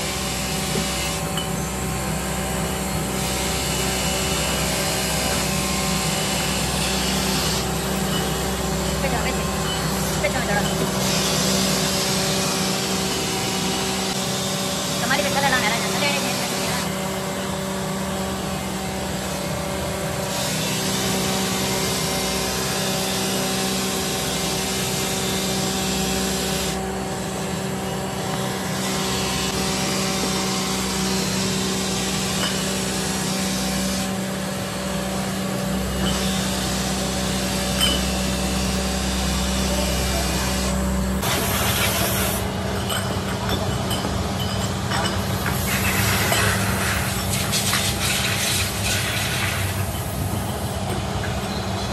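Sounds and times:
electric motor hum: 0.0 - 42.6
polishing wheel rubbing hiss: 39.4 - 42.5, 45.5 - 50.3.

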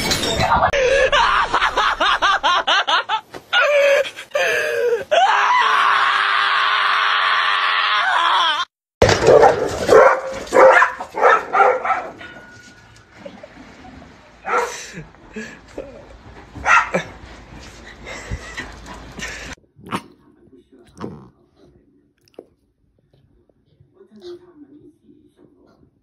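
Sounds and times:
dogs barking sharply: 9.0 - 12.5, 14.4 - 14.8, 16.6 - 17.1.

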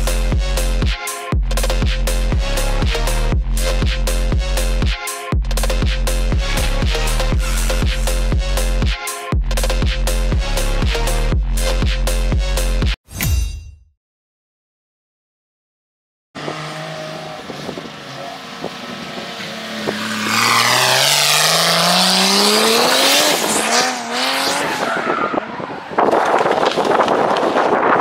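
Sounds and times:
car engine revving: 16.4 - 25.2.

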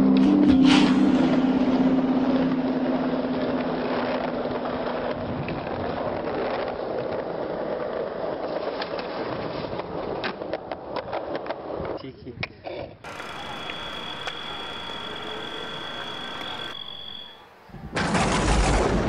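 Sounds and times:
skateboard wheels rolling on concrete: 1.0 - 18.0
skateboard clacking: 3.8 - 16.8.

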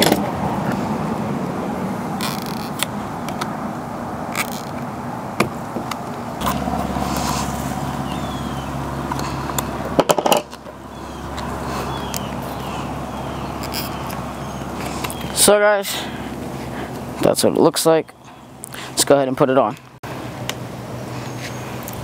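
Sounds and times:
low steady hum: 0.0 - 18.9
outdoor background noise: 0.0 - 22.0
small parts clicking and scraping: 13.6 - 14.2.

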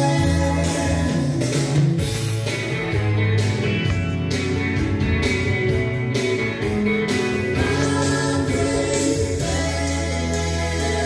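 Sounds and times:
song over loudspeakers: 0.0 - 2.1, 7.1 - 11.0.

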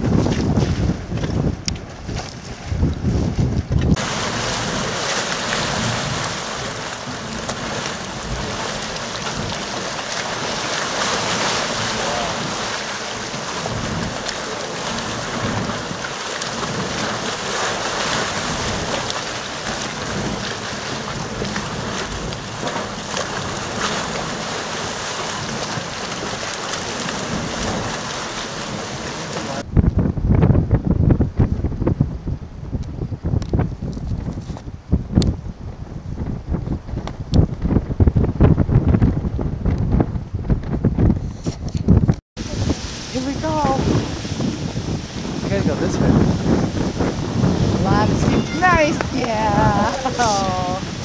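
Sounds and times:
geyser steaming and churning: 3.9 - 29.7, 42.4 - 51.0.

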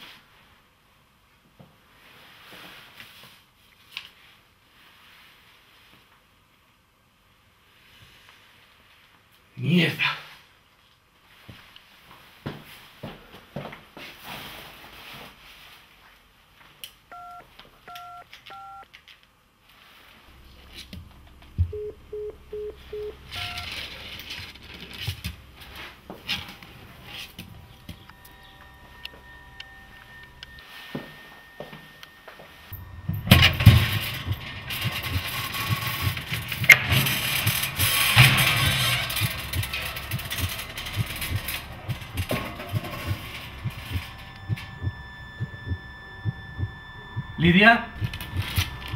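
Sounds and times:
busy tone beeps: 17.1 - 18.8, 21.6 - 23.9, 27.6 - 36.2, 40.4 - 48.9
higher beep: 17.1 - 18.8, 21.6 - 23.8, 27.7 - 36.8, 39.5 - 48.9
heartbeat thumps: 20.9 - 23.6, 32.7 - 37.9, 39.2 - 48.9
knocks and scuffling: 22.8 - 29.3, 30.4 - 48.9
rustling rattle: 33.2 - 44.6.

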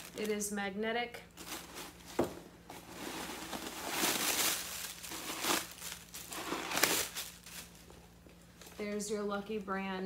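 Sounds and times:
leather handbag crinkling and rustling: 2.9 - 9.0.

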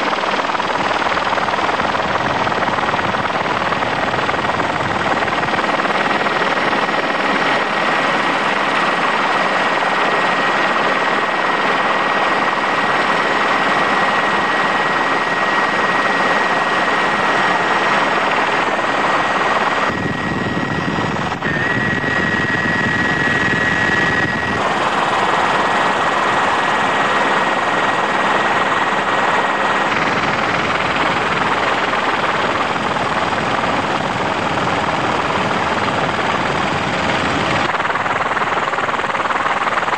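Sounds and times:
helicopter cabin rush: 0.0 - 39.9
faint high whine: 4.5 - 33.1.

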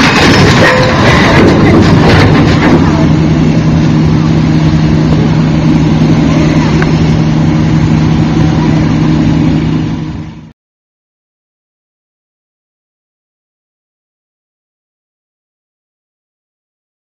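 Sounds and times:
heavy engine idling: 0.0 - 10.5.

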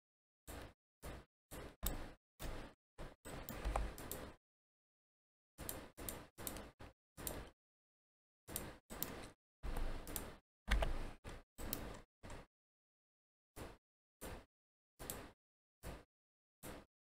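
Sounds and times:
mouse and keyboard clicking: 5.6 - 7.5, 8.5 - 12.4.

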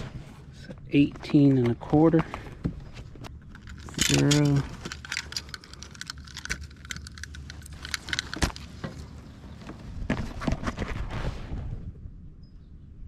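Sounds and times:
fishing gear clicking and rattling: 3.2 - 9.2.

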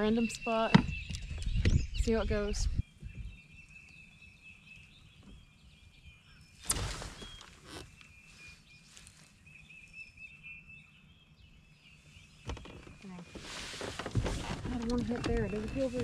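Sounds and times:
faint bird chirps: 0.0 - 13.6
fishing rod cast swish: 6.6 - 7.3.

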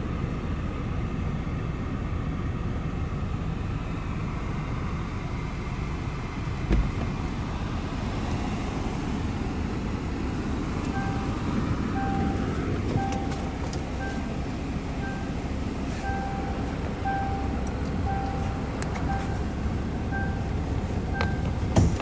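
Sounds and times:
car engine idling: 0.0 - 22.0
dashboard warning chime beeping: 10.3 - 22.0.

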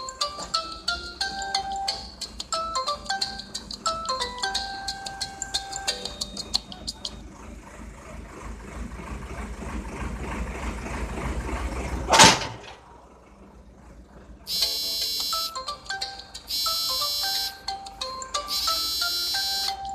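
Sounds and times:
bell-like ringtone melody: 0.0 - 7.2, 14.5 - 19.9.

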